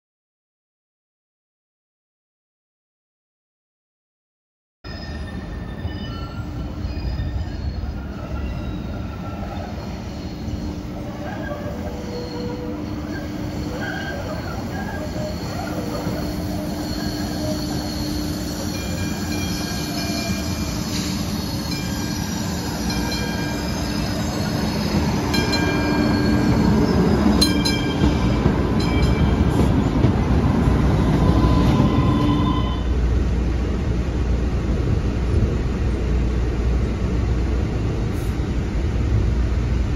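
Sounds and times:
train wheels squealing: 0:04.9 - 0:30.2, 0:30.8 - 0:32.9
train rumble: 0:05.2 - 0:39.9.

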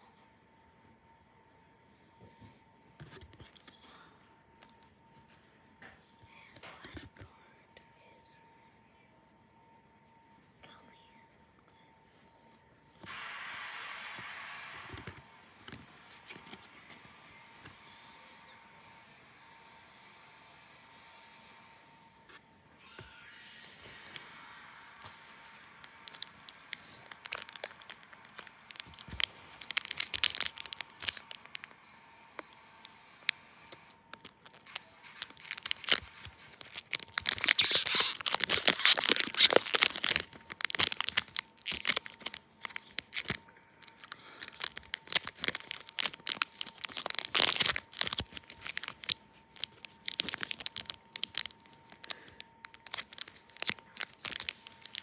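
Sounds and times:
wrappers tearing and crinkling: 0:14.6 - 0:17.0, 0:25.1 - 0:31.8, 0:32.4 - 0:55.0.

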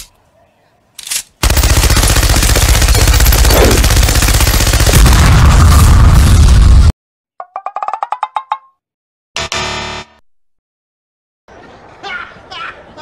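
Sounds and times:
machine-gun fire: 0:01.4 - 0:06.6.

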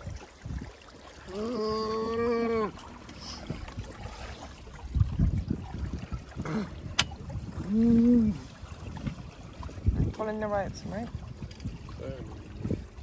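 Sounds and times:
water lapping against a boat hull: 0:00.0 - 0:13.0
person humming a steady tone: 0:01.3 - 0:02.8.

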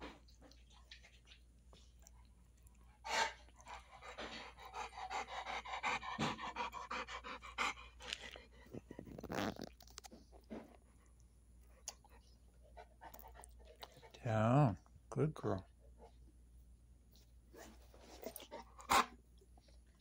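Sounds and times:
dog panting rapidly: 0:03.0 - 0:08.5.

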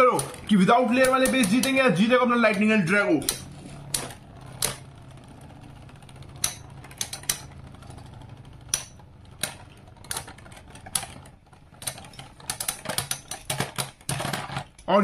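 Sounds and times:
spinning tops clacking together: 0:00.0 - 0:02.0
spinning tops whirring: 0:00.0 - 0:15.0.

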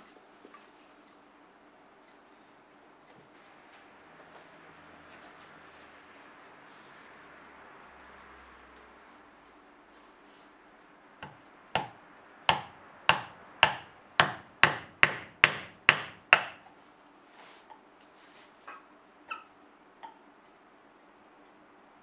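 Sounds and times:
hammer striking chisel: 0:11.2 - 0:16.7.

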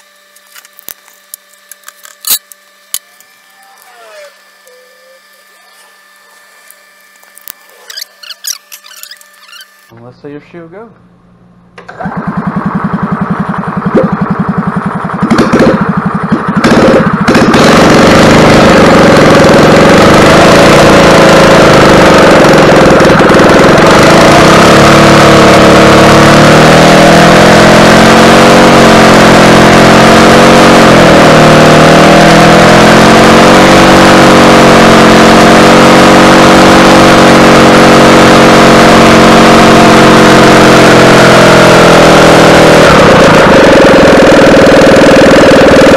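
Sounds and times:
golf cart engine running: 0:00.0 - 0:09.9, 0:11.4 - 0:45.9
starter cranking engine: 0:11.8 - 0:45.9.

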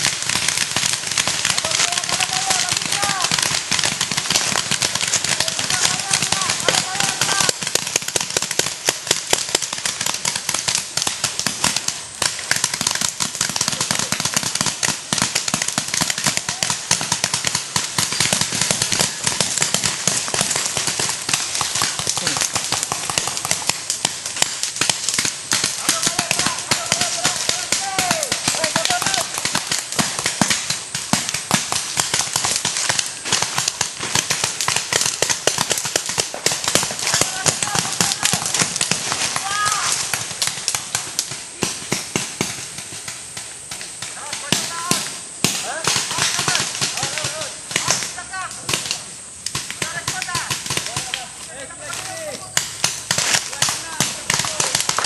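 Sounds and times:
paintball markers firing: 0:00.0 - 0:55.0.

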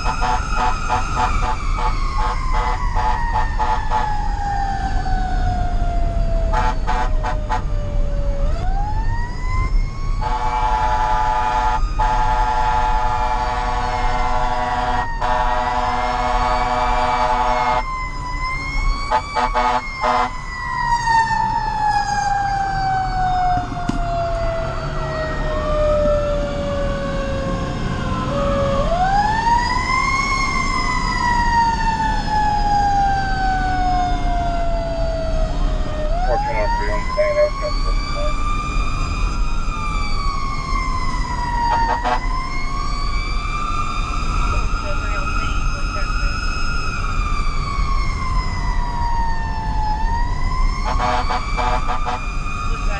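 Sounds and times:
air horn blasts: 0:00.0 - 0:04.2, 0:06.5 - 0:07.7, 0:10.2 - 0:17.8, 0:19.1 - 0:20.4, 0:41.7 - 0:42.3, 0:50.8 - 0:52.2
fire engine siren wailing: 0:00.0 - 0:52.9.

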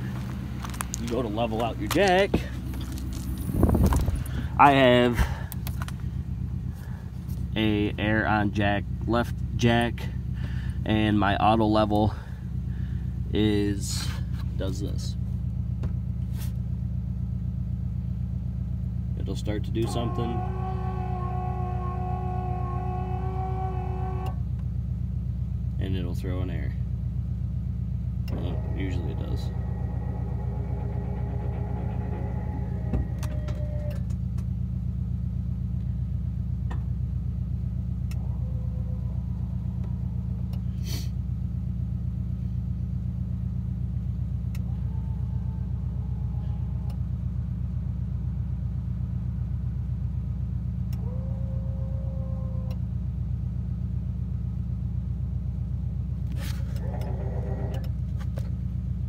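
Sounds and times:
low mechanical drone: 0:00.0 - 0:59.0.

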